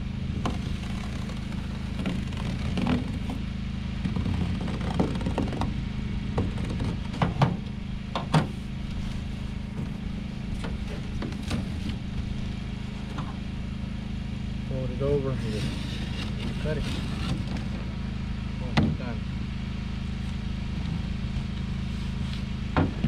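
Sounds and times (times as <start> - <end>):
engine running steadily: 0.0 - 23.0
knife cutting cardboard: 0.5 - 3.4, 4.1 - 5.7, 15.4 - 17.7.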